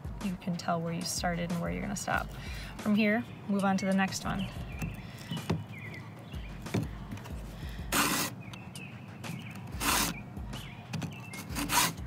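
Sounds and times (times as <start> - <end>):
file rasping on chain teeth: 7.8 - 8.4, 9.4 - 10.2, 11.3 - 12.0.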